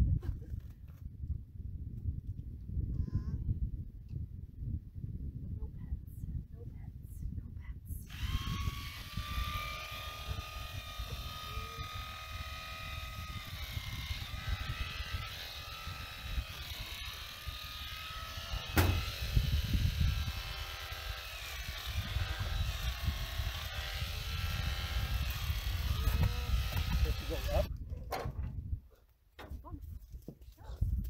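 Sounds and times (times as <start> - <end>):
electric shears whining: 8.1 - 27.7
sharp knock: 18.7 - 19.1.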